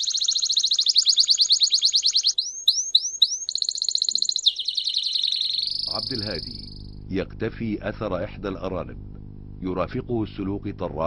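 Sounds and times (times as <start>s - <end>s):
rapid chirping trill: 0.0s - 7.2s
rising chirps: 0.0s - 7.2s.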